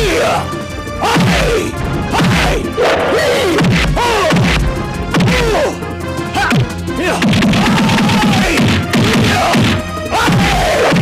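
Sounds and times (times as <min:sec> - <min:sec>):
background music: 0:00.0 - 0:11.0
punch sound effects: 0:01.2 - 0:05.5.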